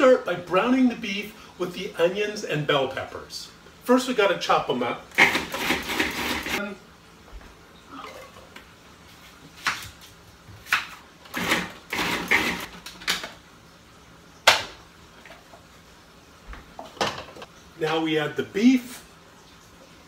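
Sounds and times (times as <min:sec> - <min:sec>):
food processor chopping: 0:05.1 - 0:06.6, 0:10.7 - 0:12.7.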